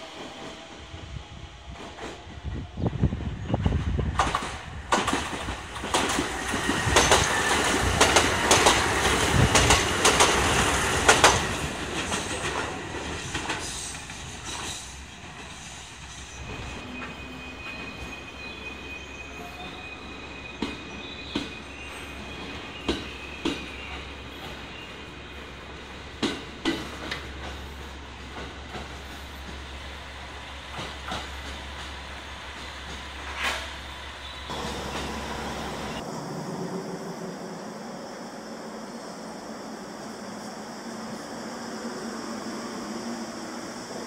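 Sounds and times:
diesel railcar running: 0:00.0 - 0:37.9
train rushing past: 0:00.0 - 0:44.0
wheels clacking over rail joints: 0:04.1 - 0:15.6.

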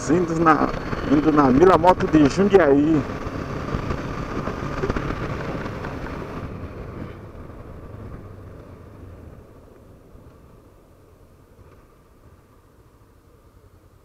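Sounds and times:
wind rush: 0:00.0 - 0:10.1
motorcycle engine slowing: 0:00.0 - 0:13.0.

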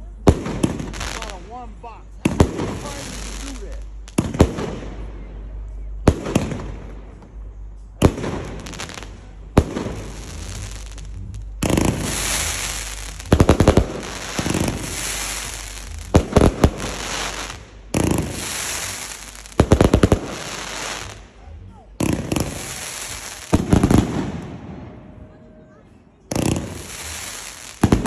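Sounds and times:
firework crackling hiss: 0:00.0 - 0:05.1, 0:08.0 - 0:21.4, 0:22.0 - 0:24.6, 0:26.3 - 0:28.0
firework bangs: 0:00.2 - 0:01.6, 0:02.2 - 0:05.1, 0:06.0 - 0:07.4, 0:08.0 - 0:25.2, 0:26.3 - 0:28.0.

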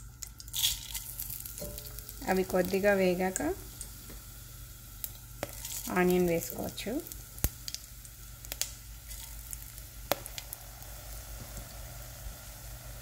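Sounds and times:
spices sizzling in hot oil: 0:00.0 - 0:13.0
sharp crackles: 0:05.0 - 0:11.7.

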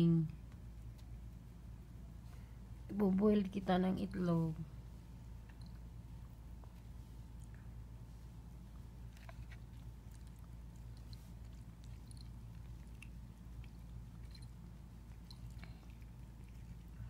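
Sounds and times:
low hum: 0:00.0 - 0:17.0
cat chewing and licking: 0:05.0 - 0:17.0.

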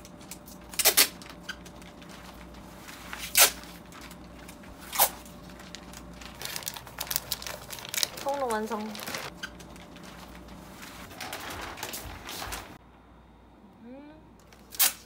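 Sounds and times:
packing tape ripping: 0:00.0 - 0:02.5, 0:03.1 - 0:04.2, 0:04.8 - 0:10.0, 0:14.5 - 0:15.0
plastic sheeting crinkling: 0:00.0 - 0:12.8.

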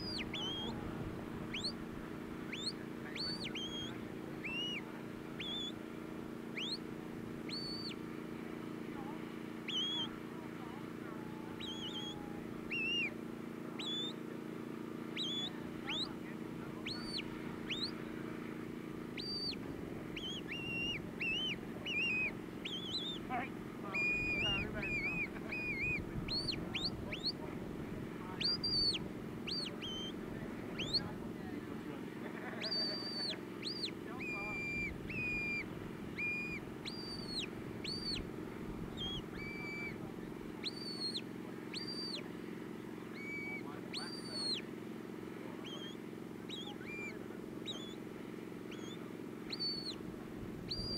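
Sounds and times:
steady low hum: 0:00.0 - 0:50.9
shepherd's whistle commands: 0:09.7 - 0:10.1.

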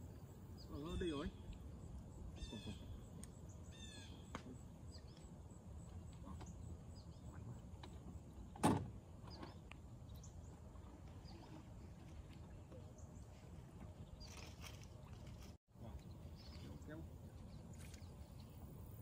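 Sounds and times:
faint bird chirps: 0:00.1 - 0:05.3.

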